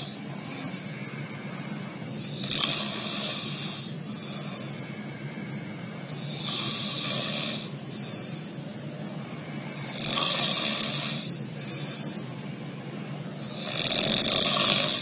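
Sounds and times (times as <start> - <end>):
man snoring: 0.0 - 5.2, 6.0 - 8.3, 9.2 - 12.1, 13.4 - 15.0
steady low hum: 0.0 - 15.0.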